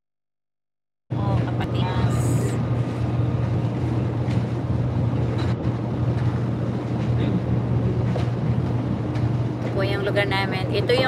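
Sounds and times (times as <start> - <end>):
car interior road drone: 1.1 - 11.0.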